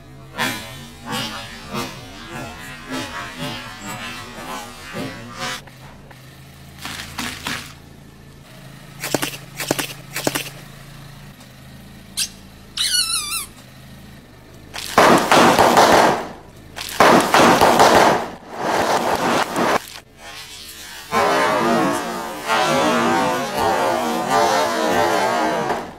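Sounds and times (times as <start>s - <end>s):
chip bags popping and crunching: 6.8s - 7.8s, 14.7s - 20.1s
short sharp cracks: 8.9s - 10.7s, 14.7s - 24.1s
squeaky toy squeal: 12.2s - 13.6s.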